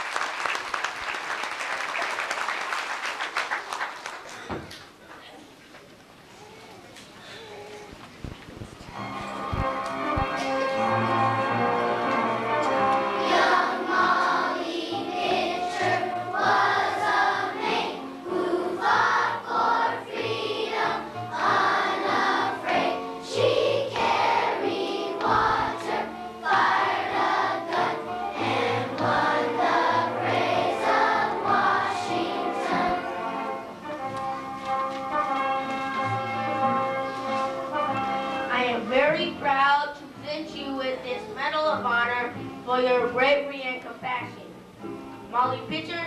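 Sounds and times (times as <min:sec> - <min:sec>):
instrumental accompaniment: 0:08.8 - 0:46.0
children's choir singing: 0:10.3 - 0:33.9.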